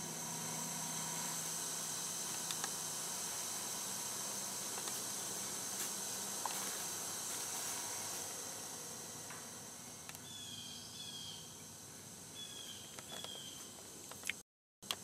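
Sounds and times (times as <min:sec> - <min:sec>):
insects buzzing: 0:00.0 - 0:15.0.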